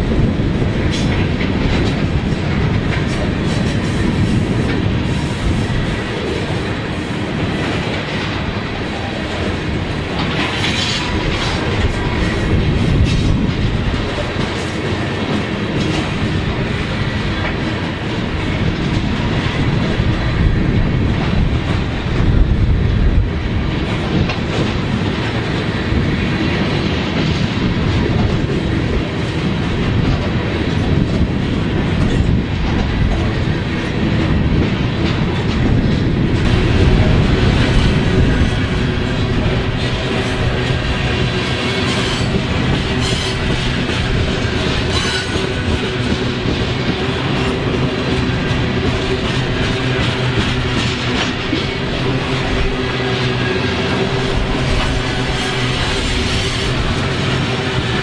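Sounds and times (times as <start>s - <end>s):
freight train wheels rumbling and clacking: 0.0s - 58.0s.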